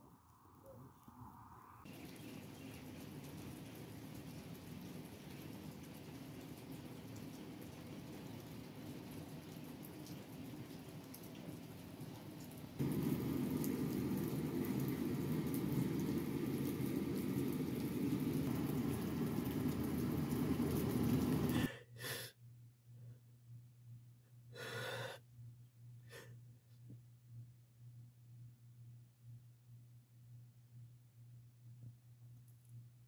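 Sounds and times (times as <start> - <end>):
low steady hum: 0.0 - 33.0
steady rain falling: 1.8 - 21.7
shaky gasping breaths: 21.5 - 22.3, 24.6 - 25.2.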